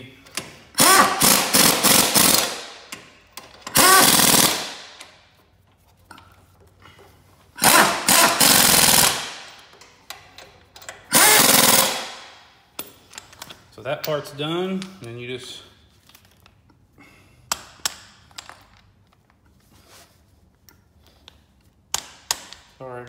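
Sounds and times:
pneumatic impact wrench hammering: 0.3s - 5.2s, 7.6s - 9.6s, 10.8s - 12.4s.

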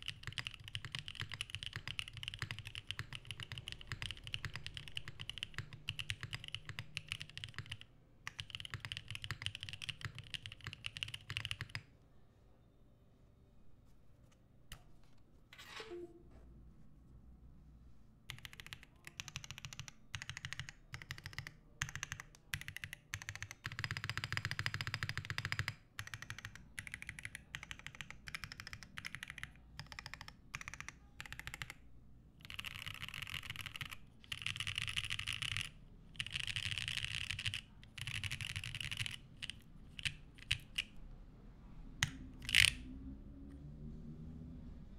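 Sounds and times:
mechanical keyboard typing: 0.0s - 11.9s, 18.3s - 31.8s, 32.4s - 41.0s, 42.0s - 42.9s.

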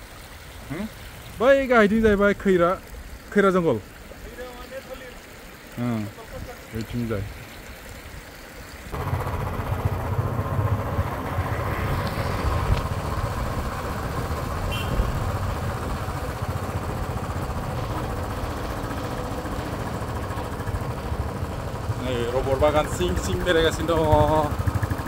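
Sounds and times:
motorcycle engine running: 8.9s - 25.0s.

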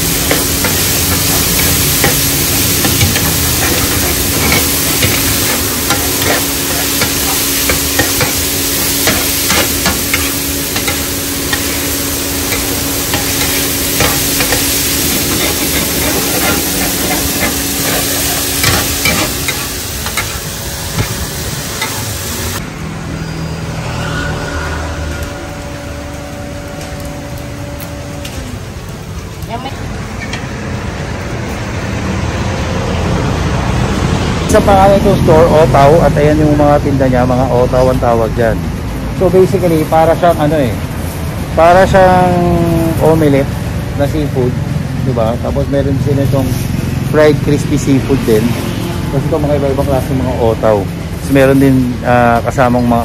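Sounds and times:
utensil scraping metal pan: 0.0s - 22.0s
food sizzling in a pan: 0.0s - 22.6s
steady hum: 0.0s - 22.8s.

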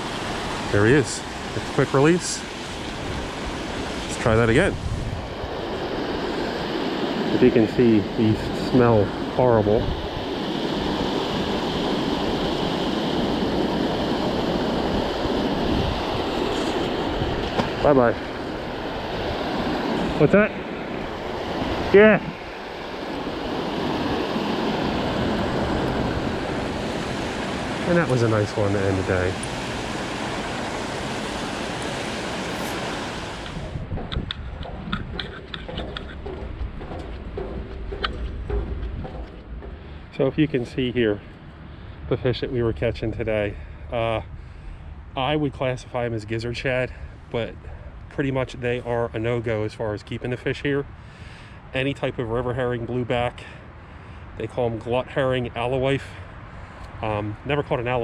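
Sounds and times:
water rushing over spillway: 0.0s - 33.9s
wind rumbling on microphone: 0.0s - 58.0s
water pouring over a spillway: 27.4s - 33.4s
footsteps on footbridge deck: 29.3s - 42.1s
light clicks and knocks: 33.9s - 40.2s.

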